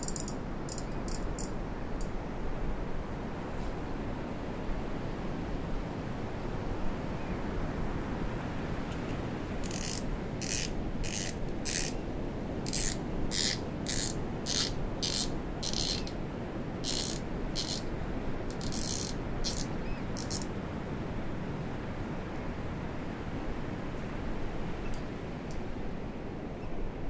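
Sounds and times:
fishing reel clicking: 0:00.0 - 0:01.5, 0:09.6 - 0:12.0, 0:12.7 - 0:16.2, 0:16.8 - 0:17.9, 0:18.5 - 0:20.5
steady low hiss: 0:00.0 - 0:05.6.

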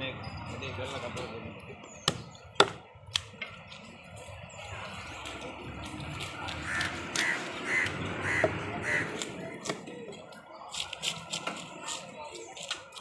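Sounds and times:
crow cawing: 0:06.6 - 0:09.2.

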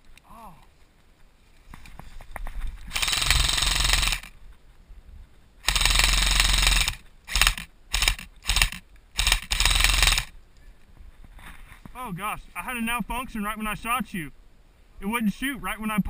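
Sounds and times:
airsoft rifle automatic bursts: 0:02.9 - 0:04.3, 0:05.6 - 0:10.3.

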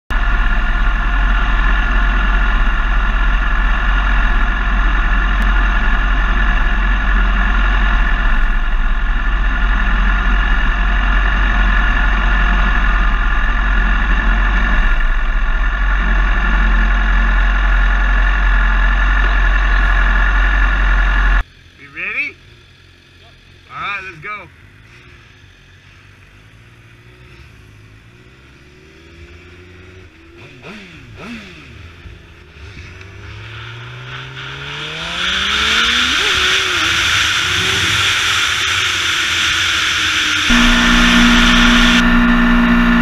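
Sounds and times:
motorcycle engine idling: 0:00.1 - 0:31.2, 0:35.9 - 0:43.0.

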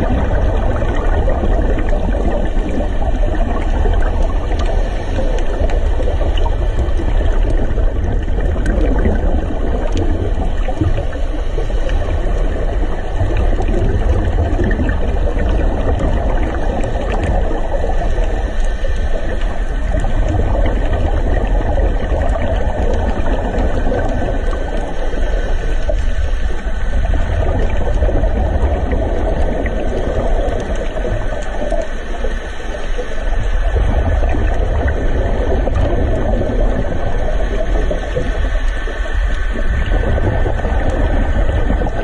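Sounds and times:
muffled underwater rush: 0:00.0 - 0:42.0
faint clicks: 0:01.8 - 0:35.9.

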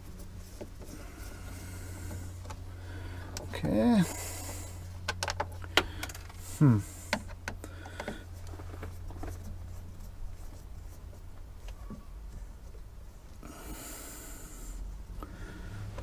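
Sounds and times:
low steady hum: 0:00.0 - 0:16.0
person grunting: 0:06.6 - 0:06.9.

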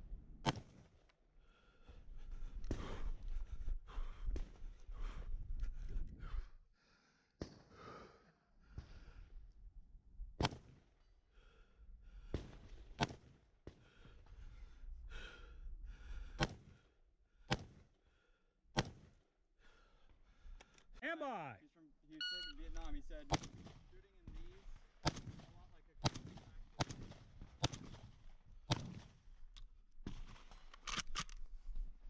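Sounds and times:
hard breathing: 0:01.4 - 0:09.3, 0:13.7 - 0:17.0, 0:19.6 - 0:20.9
gunshots: 0:23.2 - 0:29.1.

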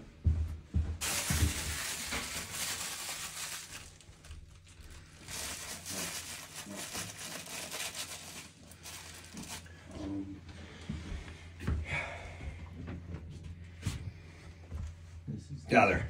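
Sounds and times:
paper wad crumpling: 0:01.0 - 0:09.9.

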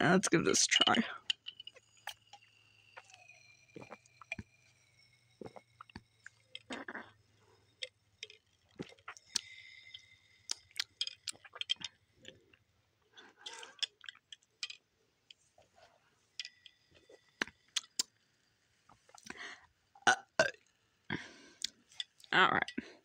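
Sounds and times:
sipping through a metal straw: 0:00.7 - 0:12.6, 0:13.2 - 0:14.8.

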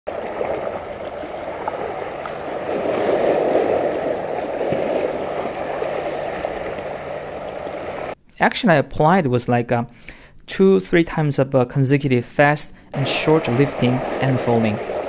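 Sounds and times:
waves washing over rocks: 0:00.1 - 0:08.2, 0:13.0 - 0:15.0.

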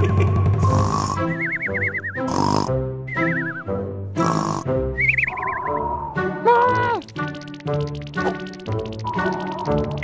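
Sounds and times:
light background music: 0:00.0 - 0:10.0
cartoon snoring: 0:00.6 - 0:01.3, 0:02.3 - 0:02.8, 0:04.2 - 0:04.7.

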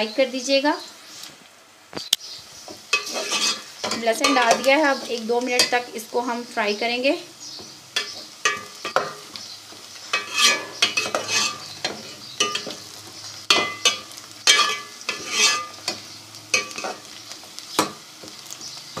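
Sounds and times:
onions sizzling: 0:00.0 - 0:19.0
spoon scraping metal pot: 0:02.9 - 0:05.8, 0:10.1 - 0:12.8, 0:13.5 - 0:16.0.

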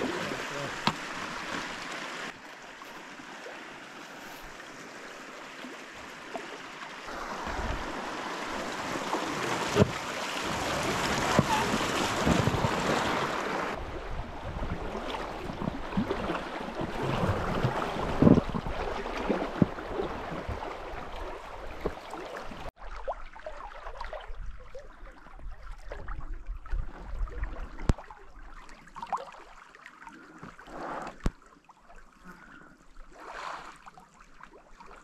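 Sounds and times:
rushing river water: 0:00.0 - 0:24.8
wind on microphone: 0:16.9 - 0:20.6.

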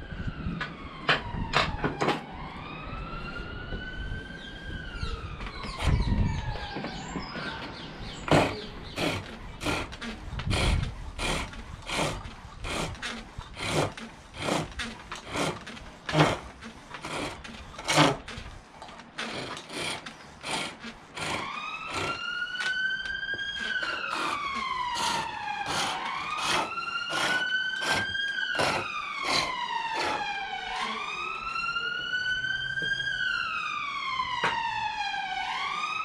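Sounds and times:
emergency siren wailing: 0:00.0 - 0:36.0
pole lathe knocks and cutting: 0:08.2 - 0:18.4.

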